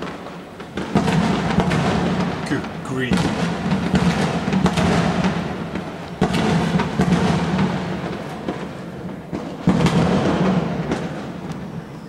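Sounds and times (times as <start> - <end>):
fireworks booming and crackling: 0.0 - 12.0
loud firework bang: 0.0 - 12.0.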